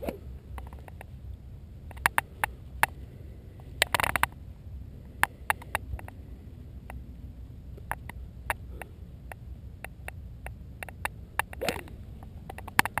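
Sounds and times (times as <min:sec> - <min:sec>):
small clicks: 0:01.9 - 0:03.0, 0:03.8 - 0:04.4, 0:05.2 - 0:06.2, 0:07.8 - 0:13.0.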